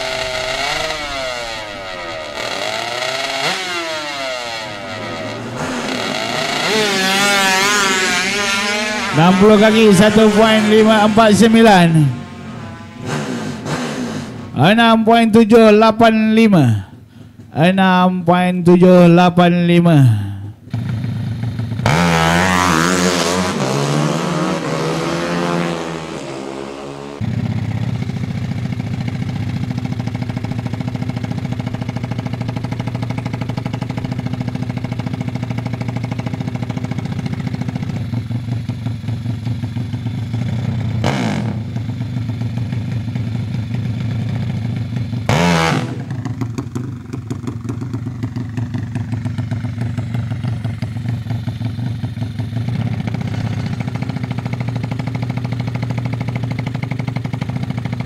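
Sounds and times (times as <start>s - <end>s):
motorcycle engine revving and idling: 0.0s - 17.6s, 20.4s - 58.0s.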